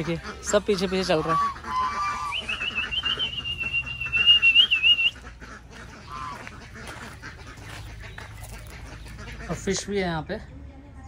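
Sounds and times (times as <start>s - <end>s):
ducks and geese quacking and honking: 0.0s - 10.5s.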